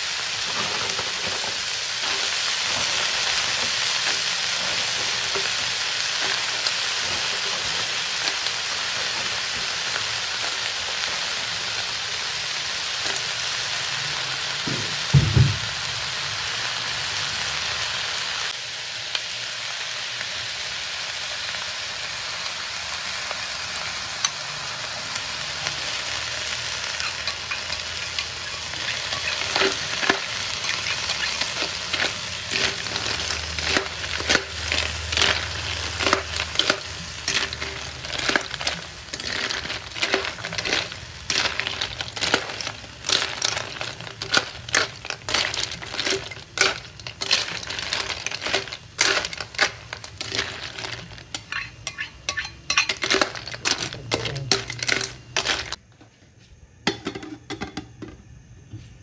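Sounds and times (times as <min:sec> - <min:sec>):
spatula stirring shells in pan: 0:00.0 - 0:14.4, 0:23.6 - 0:55.8
snails sizzling in a wok: 0:00.0 - 0:55.8.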